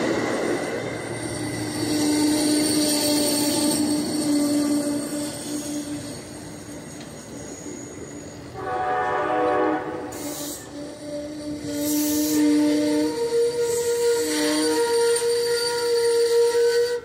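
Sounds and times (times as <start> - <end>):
passenger train rolling past: 0.0 - 17.0
train chime horn: 1.8 - 6.3, 8.5 - 17.0.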